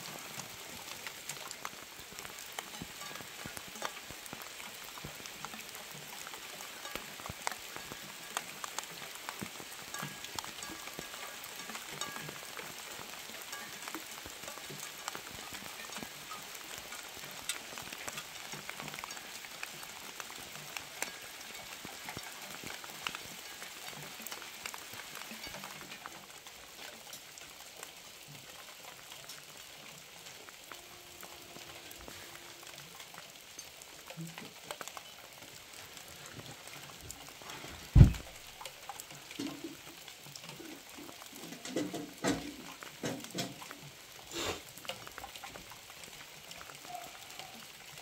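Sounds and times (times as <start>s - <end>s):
rain pattering: 0.0s - 48.0s
heavy thump: 38.0s - 38.3s.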